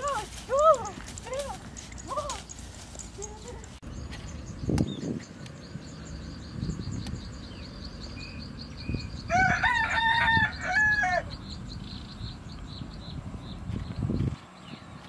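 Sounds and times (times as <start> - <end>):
rooster crowing: 9.2 - 11.4.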